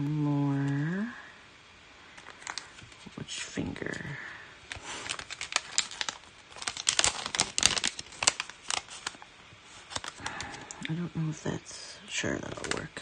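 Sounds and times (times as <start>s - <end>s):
crinkling plastic packaging: 2.1s - 10.9s, 12.4s - 13.0s.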